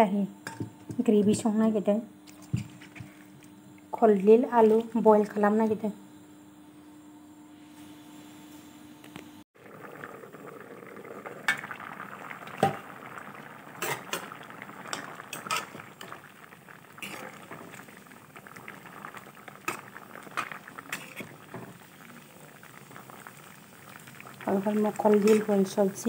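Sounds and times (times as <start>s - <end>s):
pot boiling and bubbling: 0.5s - 5.9s, 9.6s - 26.0s
ladle scraping metal pot: 13.8s - 14.3s, 14.9s - 15.8s, 17.0s - 17.6s, 19.7s - 21.4s, 25.2s - 25.6s.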